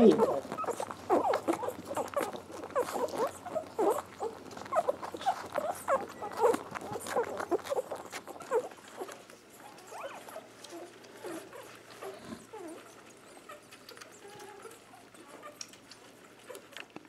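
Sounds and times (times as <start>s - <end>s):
puppies squeaking and grunting: 0.0s - 17.0s.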